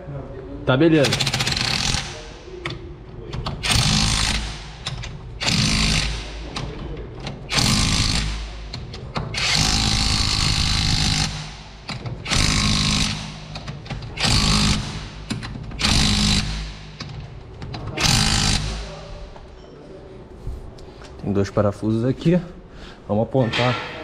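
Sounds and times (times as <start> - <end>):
impact wrench bursts: 0.9 - 19.4.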